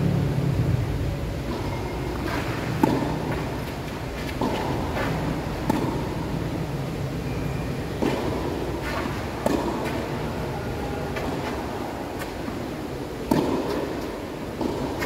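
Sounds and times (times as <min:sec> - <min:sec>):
tennis ball hits: 0:01.5 - 0:06.6, 0:07.9 - 0:10.4, 0:13.2 - 0:15.0.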